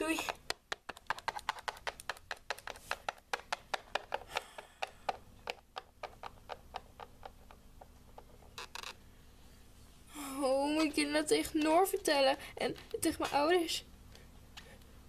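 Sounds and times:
plastic toy tapping on wood: 0:00.2 - 0:08.3.

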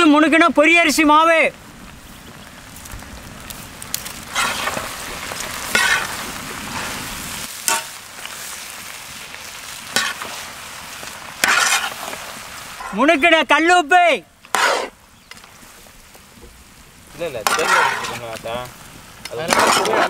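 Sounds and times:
meat sizzling in a wok: 0:01.6 - 0:13.6, 0:14.4 - 0:20.0
metal spatula scraping pan: 0:04.3 - 0:04.9, 0:05.7 - 0:06.2, 0:09.9 - 0:10.4, 0:11.4 - 0:12.2, 0:14.5 - 0:14.9, 0:17.4 - 0:18.2, 0:19.4 - 0:20.0.

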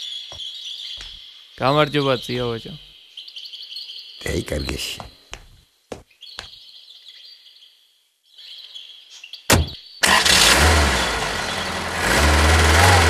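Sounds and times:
birds chirping: 0:00.0 - 0:13.0
car engine starting and running: 0:10.0 - 0:13.0.

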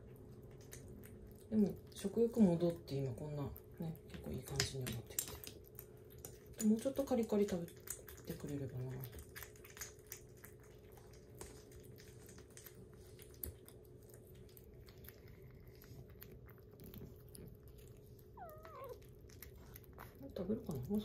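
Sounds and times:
kittens lapping and chewing: 0:00.0 - 0:21.0.

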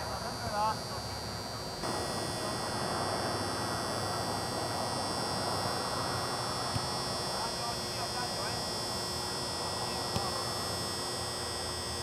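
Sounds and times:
outdoor hiss: 0:01.8 - 0:08.1.

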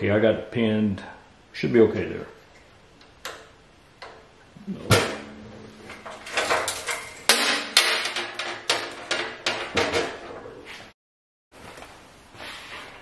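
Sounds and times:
sharp knocks and clatter: 0:04.9 - 0:10.4.

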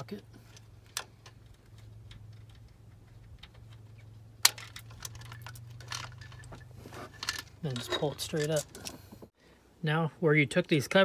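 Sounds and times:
metallic clicks and clinks: 0:00.5 - 0:09.0.

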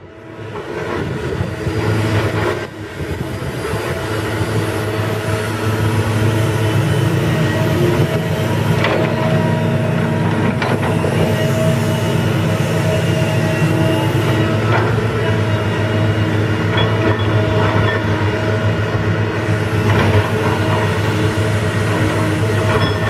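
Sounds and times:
excavator diesel engine running: 0:00.0 - 0:23.0.

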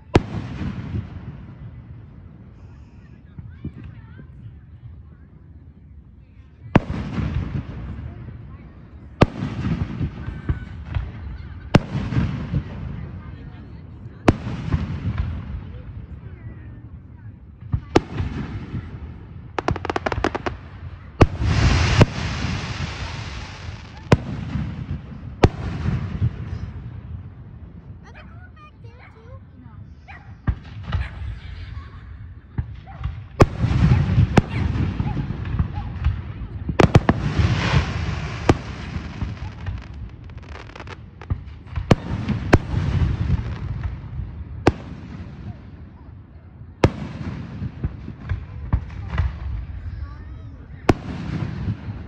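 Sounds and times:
fireworks bangs: 0:00.0 - 0:04.3, 0:06.6 - 0:16.8, 0:17.6 - 0:28.2, 0:30.4 - 0:52.0
fireworks pops and crackles: 0:00.0 - 0:04.4, 0:06.7 - 0:16.3, 0:17.6 - 0:28.1, 0:30.4 - 0:31.5, 0:32.5 - 0:50.1, 0:50.7 - 0:52.0
firework cracks: 0:17.8 - 0:26.5, 0:36.8 - 0:45.6
hissing crackle: 0:19.6 - 0:24.8.

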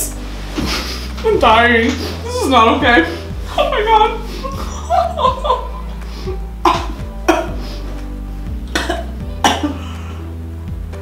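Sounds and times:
background music: 0:00.0 - 0:11.0
woman coughing: 0:06.6 - 0:07.6, 0:08.8 - 0:09.8.

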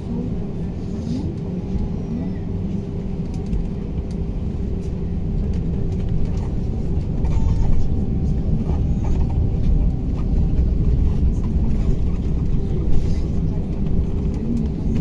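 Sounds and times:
road and tyre rumble: 0:00.0 - 0:15.0.

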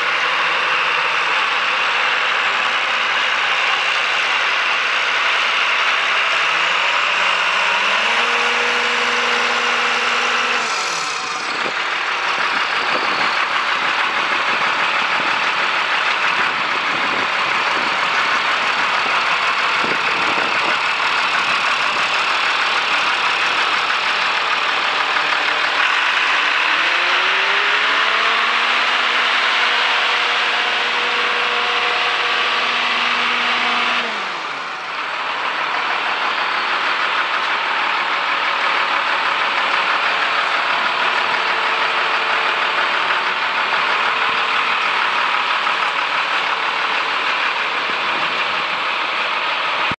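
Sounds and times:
diesel engine running: 0:00.0 - 0:50.0
rising tone: 0:06.1 - 0:15.1, 0:26.3 - 0:37.3.

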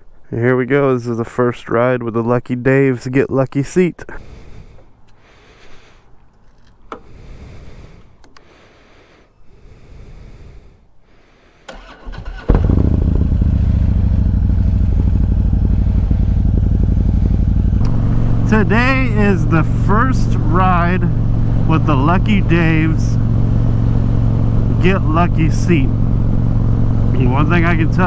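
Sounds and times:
motorcycle engine starting and idling: 0:11.7 - 0:28.0.

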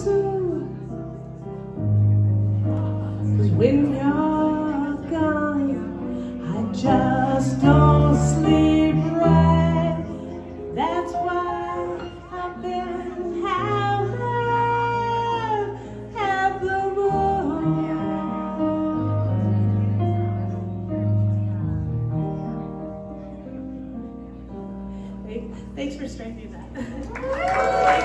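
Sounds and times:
woman singing jazz-blues: 0:00.0 - 0:00.9, 0:03.3 - 0:19.9
electric keyboard: 0:00.0 - 0:25.5.

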